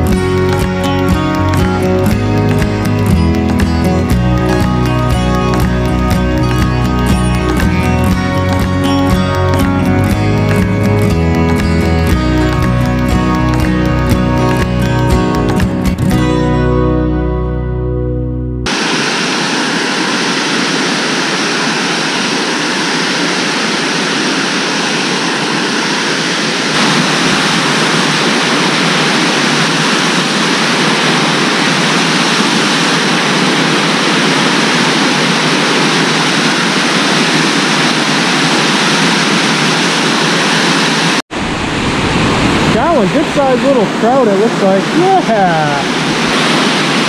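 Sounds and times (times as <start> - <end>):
waterfall rushing: 18.7 - 47.0.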